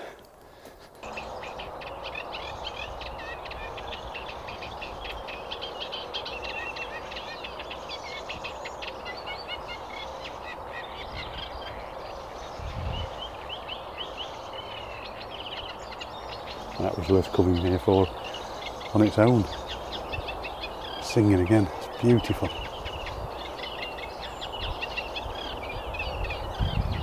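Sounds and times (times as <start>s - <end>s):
background hiss: 0.0s - 27.0s
warbler singing: 1.0s - 27.0s.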